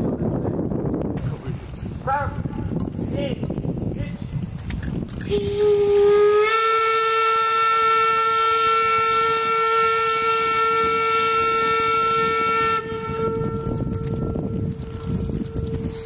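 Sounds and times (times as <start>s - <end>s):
steam locomotive whistle: 5.3s - 16.0s.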